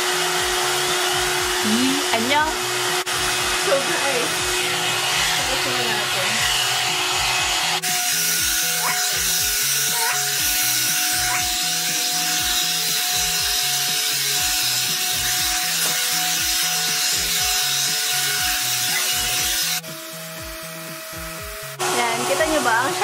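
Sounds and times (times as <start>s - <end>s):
hot-air dryer brush running: 0.0s - 23.0s
music with beat and singing: 6.3s - 21.8s.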